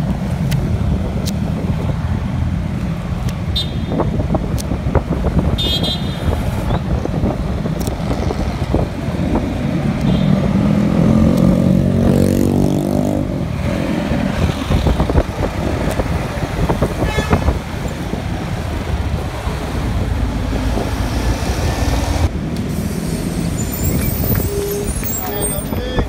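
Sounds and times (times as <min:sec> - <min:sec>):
low rumble of traffic: 0:00.0 - 0:26.0.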